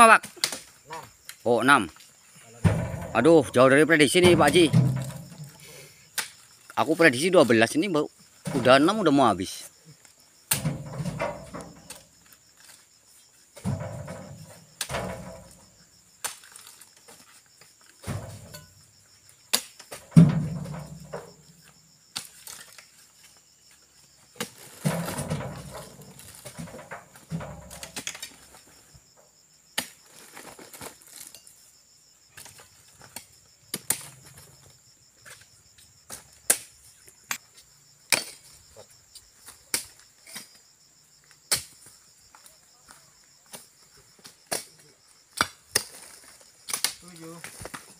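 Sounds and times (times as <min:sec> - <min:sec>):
high insect drone: 0:00.0 - 0:47.9
fruit bunches thudding onto pile: 0:02.6 - 0:05.6, 0:08.4 - 0:09.1, 0:10.5 - 0:12.0, 0:13.6 - 0:16.4, 0:18.0 - 0:18.8, 0:19.9 - 0:21.4, 0:24.4 - 0:28.5.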